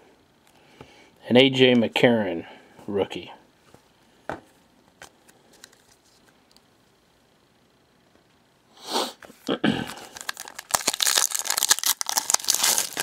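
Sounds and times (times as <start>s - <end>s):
foil wrapper crinkling: 9.9s - 13.0s.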